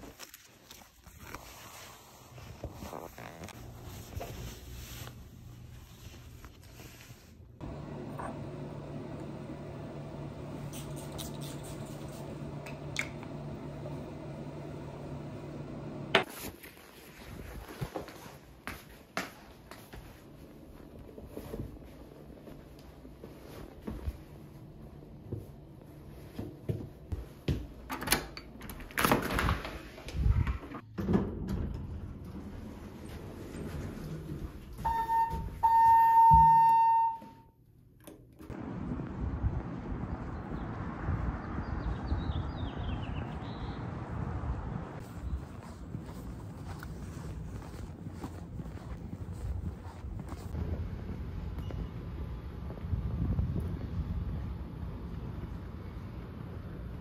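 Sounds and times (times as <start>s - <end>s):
handling and rustling noise: 0.0s - 7.6s, 16.2s - 24.6s, 45.0s - 50.6s
household appliance humming: 7.6s - 11.0s.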